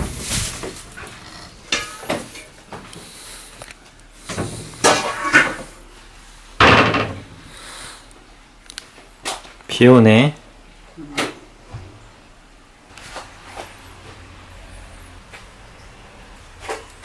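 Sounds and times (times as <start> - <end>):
bowls clattering: 0.0 - 2.6.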